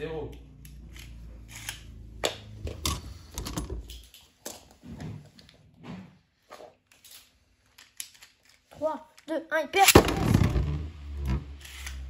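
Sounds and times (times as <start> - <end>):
spinning top whirring and rattling: 9.8 - 12.0.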